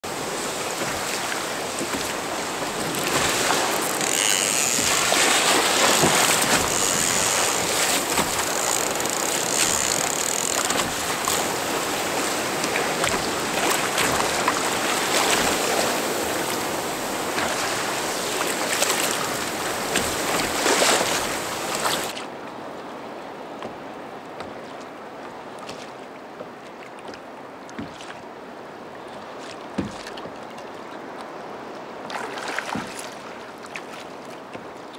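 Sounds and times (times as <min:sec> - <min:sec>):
sea water splashing against kayak: 0:00.0 - 0:22.7, 0:23.5 - 0:34.9
water lapping around hull: 0:00.0 - 0:34.9.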